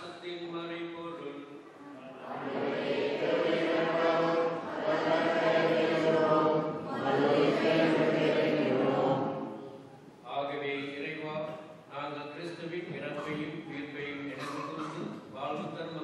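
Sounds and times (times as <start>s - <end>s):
choir chanting liturgical response: 2.0s - 9.8s.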